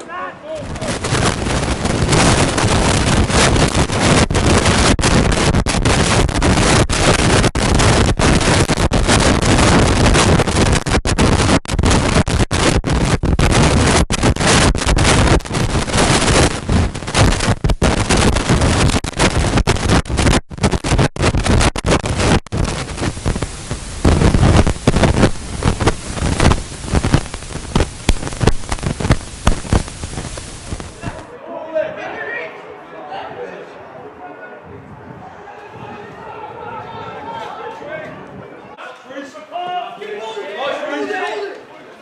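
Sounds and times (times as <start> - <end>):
wind noise on microphone: 0.6 - 31.3, 34.6 - 37.4.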